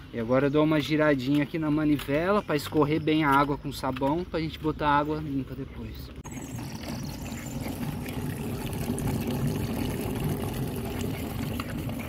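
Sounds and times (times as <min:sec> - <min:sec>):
water pouring from drain: 0:06.2 - 0:12.0.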